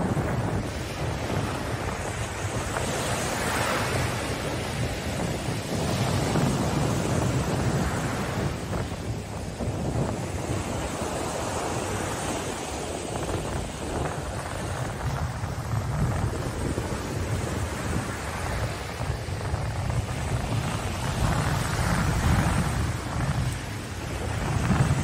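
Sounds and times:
surf washing over sand: 0.0s - 25.0s
wind rumble on microphone: 0.0s - 25.0s.

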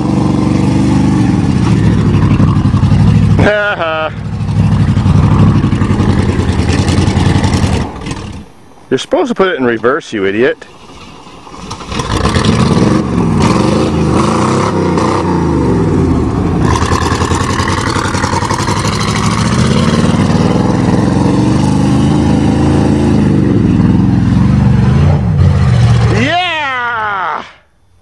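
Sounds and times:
pickup engine revving hard: 11.6s - 26.1s.

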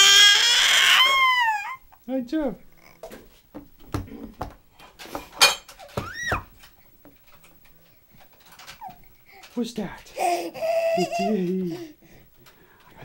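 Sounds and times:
baby squealing: 0.0s - 1.8s, 6.0s - 6.5s, 10.2s - 11.4s.

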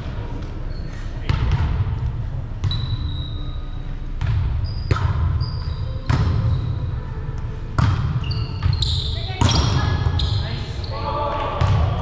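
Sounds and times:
low hum of hall: 0.0s - 12.0s
shoes squeaking on court: 0.4s - 1.4s, 2.6s - 6.8s, 8.1s - 11.2s
volleyball impacts echoing: 7.7s - 10.2s, 11.3s - 12.0s.

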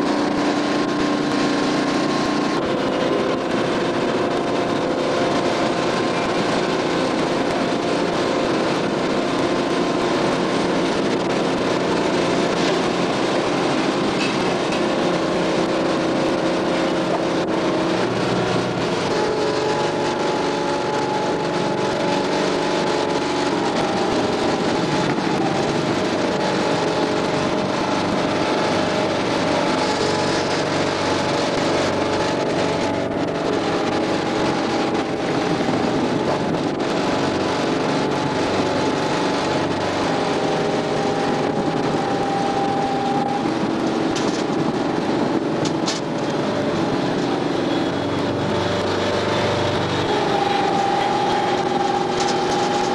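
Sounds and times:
conveyor machinery droning: 0.0s - 52.9s.

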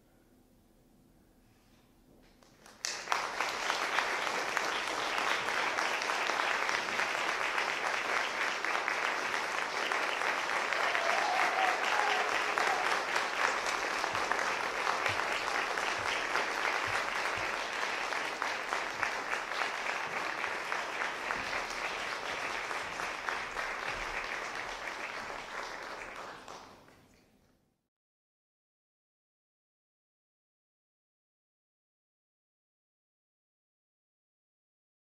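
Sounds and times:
audience applauding: 2.4s - 27.3s.

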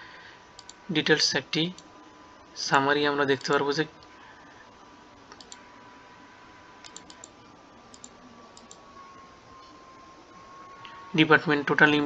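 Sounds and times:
computer mouse button clicking: 5.3s - 5.6s, 6.8s - 7.3s.

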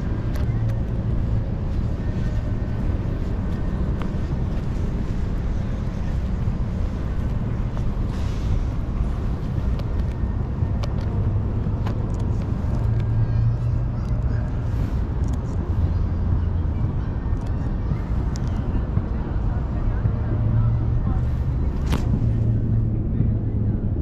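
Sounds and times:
distant traffic rumble: 0.0s - 24.0s.

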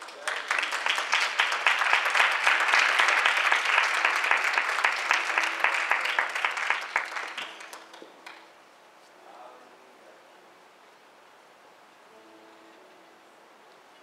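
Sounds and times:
congregation applauding: 0.0s - 8.6s.

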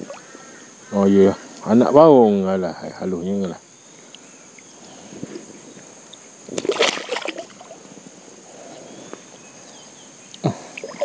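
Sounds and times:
insects shrilling: 0.0s - 11.0s
water sloshing and splashing: 6.5s - 7.9s.

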